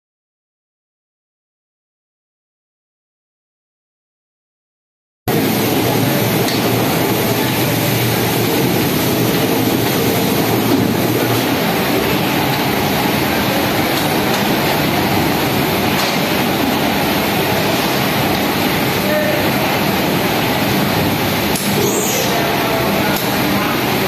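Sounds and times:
washing machines rumbling: 5.3s - 24.0s.

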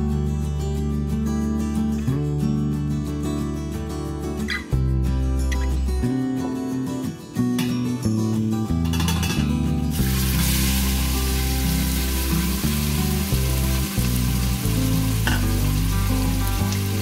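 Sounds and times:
background music: 0.0s - 17.0s
beef sizzling in hot oil: 9.9s - 17.0s.

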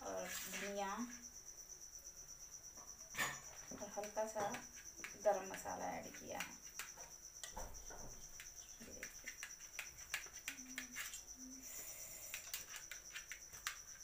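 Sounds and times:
knife scraping a steel plate: 3.1s - 3.5s.

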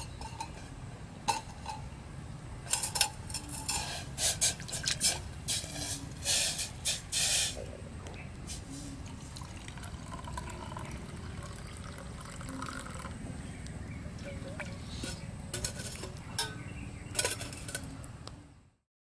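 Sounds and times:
tea pouring into metal mug: 9.0s - 13.2s.

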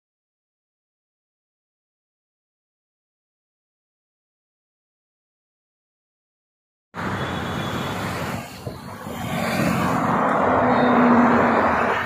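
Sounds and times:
road traffic noise: 7.0s - 12.0s
vehicle approaching: 7.0s - 12.0s.

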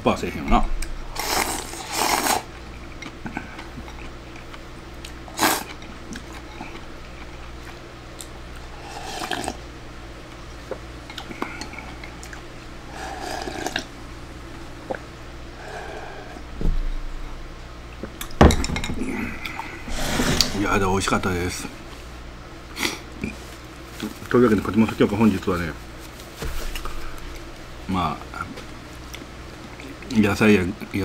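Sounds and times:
person slurping: 1.2s - 2.5s, 5.3s - 5.8s, 8.7s - 9.6s, 12.9s - 13.9s, 19.1s - 20.6s
person gulping: 9.0s - 9.6s.

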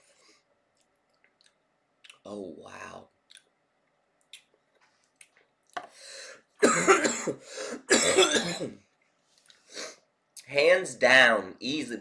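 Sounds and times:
breathy exhale: 5.9s - 6.4s
man coughing hard: 6.6s - 8.8s.

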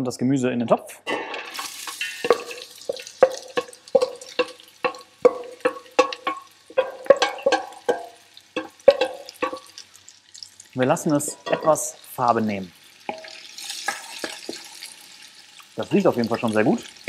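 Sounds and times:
vegetables hissing in hot oil: 1.4s - 17.0s
wooden spoon knocking metal bowl: 2.0s - 9.7s, 11.3s - 11.9s
metal bowl ringing: 11.3s - 11.9s.

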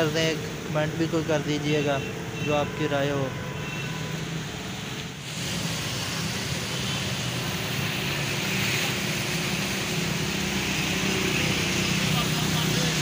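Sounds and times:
small engines humming: 6.0s - 13.0s.

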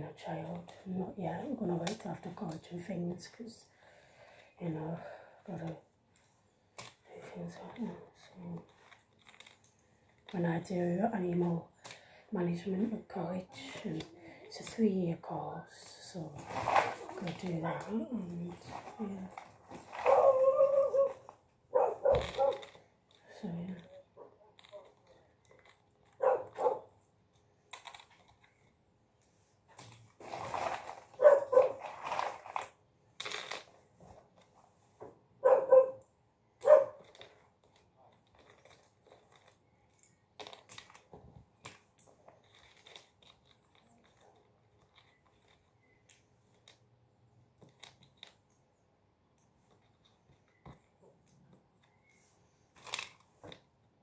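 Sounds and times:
dog barking: 20.0s - 22.6s, 26.2s - 26.9s, 31.2s - 31.8s, 35.4s - 36.0s, 36.6s - 37.0s.

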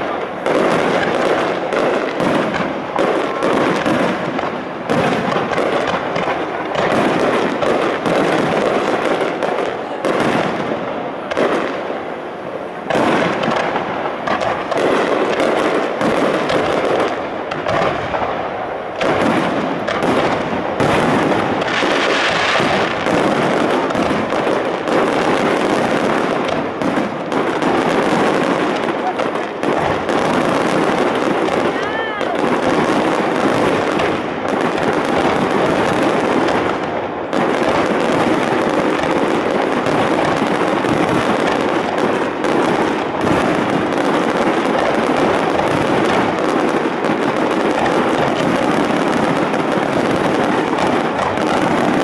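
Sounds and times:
firework shells bursting: 12.8s - 52.0s.

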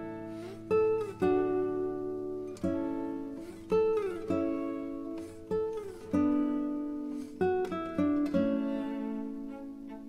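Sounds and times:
acoustic guitar plucking: 0.0s - 10.0s.

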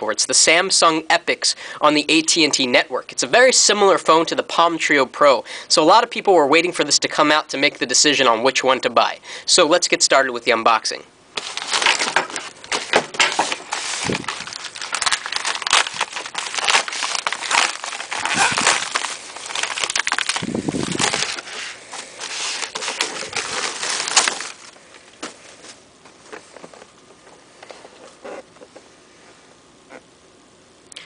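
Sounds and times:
plastic packaging crinkling: 11.4s - 28.6s.

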